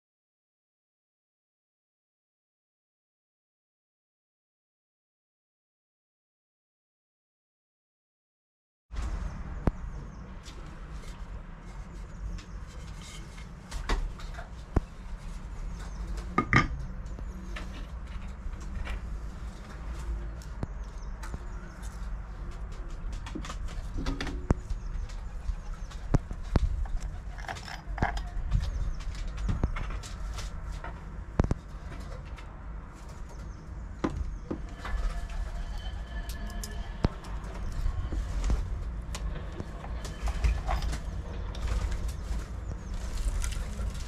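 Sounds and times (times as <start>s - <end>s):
wooden parts knocking on table: 16.4s - 16.8s.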